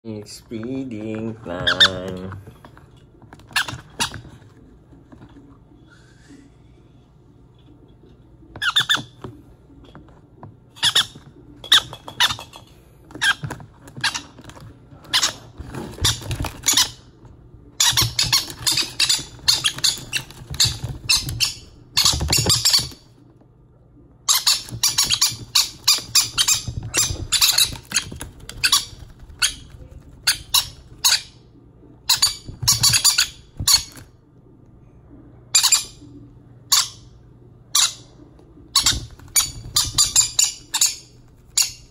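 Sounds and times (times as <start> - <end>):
parrot chicks squawking: 1.6 - 2.2, 3.4 - 4.3, 8.6 - 9.2, 10.8 - 17.1, 17.8 - 23.1, 24.3 - 31.4, 32.0 - 34.1, 35.5 - 41.9.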